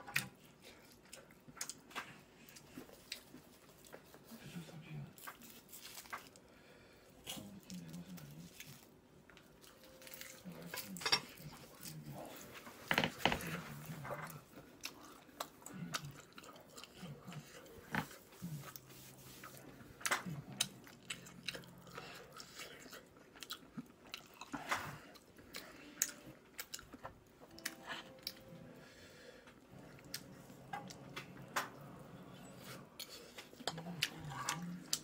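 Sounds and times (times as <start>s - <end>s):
person chewing and crunching: 0.0s - 4.4s, 5.1s - 6.6s, 7.2s - 28.6s, 29.4s - 35.0s.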